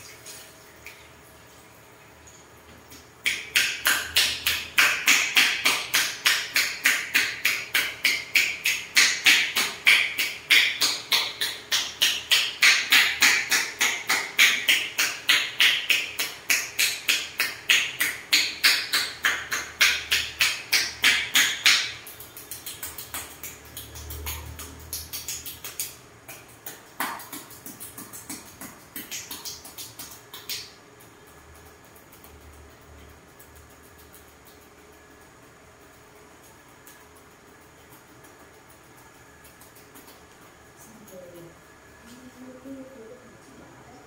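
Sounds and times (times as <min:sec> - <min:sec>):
hands tapping on wrapped head: 0:03.2 - 0:30.7.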